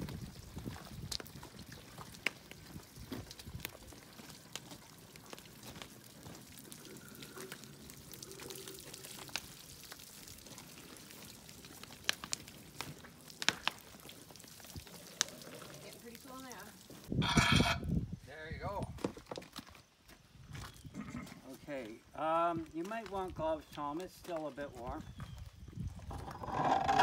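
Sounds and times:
water splashing onto hot metal: 0:00.0 - 0:17.2.

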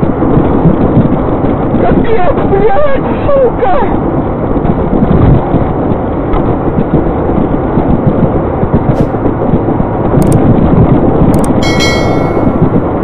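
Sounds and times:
car engine and road noise: 0:00.0 - 0:13.0
clicks: 0:11.4 - 0:12.4
ringing bell ding: 0:11.6 - 0:12.8.

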